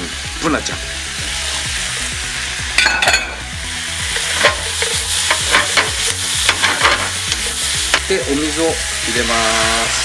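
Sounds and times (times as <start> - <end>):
food sizzling in a frying pan: 0.0 - 10.0
spatula clacking and scraping pan: 4.1 - 8.1.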